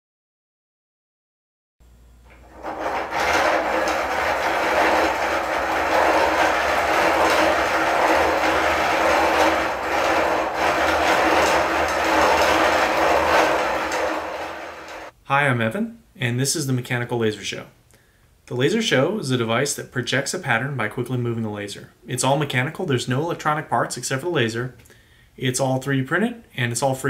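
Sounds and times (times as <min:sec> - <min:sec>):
plastic gears whirring: 0:02.3 - 0:15.1.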